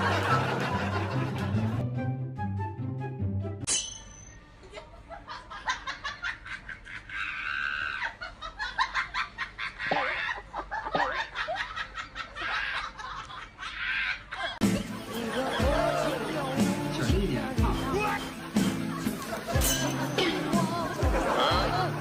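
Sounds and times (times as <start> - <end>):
people laughing: 0.0 - 1.8, 4.6 - 22.0.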